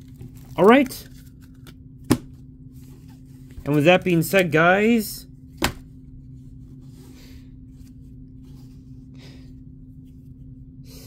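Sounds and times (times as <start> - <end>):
trading cards rustling: 0.0 - 1.8, 2.8 - 5.8
steady low hum: 0.0 - 11.0.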